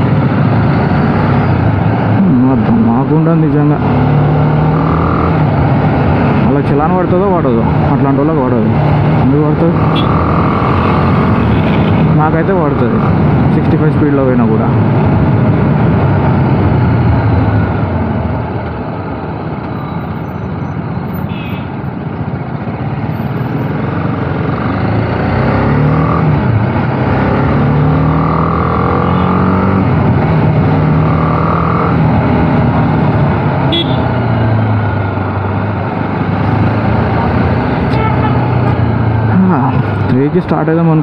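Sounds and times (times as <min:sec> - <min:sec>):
car horn notes: 0:33.7 - 0:34.1.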